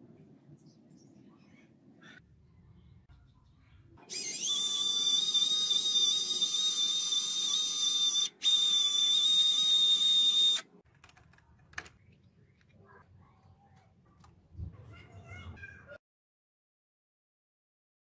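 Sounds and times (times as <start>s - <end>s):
small electric motor whining: 4.1s - 10.6s.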